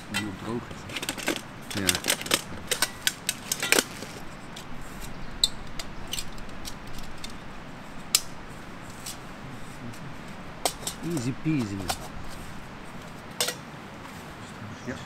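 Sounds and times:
metal cookware clicking and clinking: 0:13.4 - 0:13.6.

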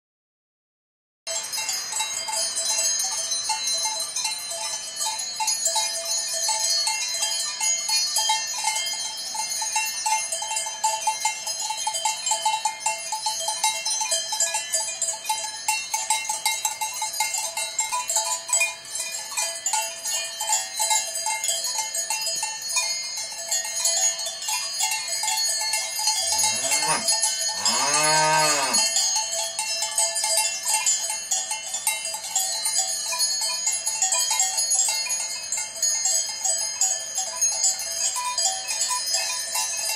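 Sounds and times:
cowbells clanking: 0:01.3 - 0:39.9
cow mooing: 0:26.2 - 0:28.9.

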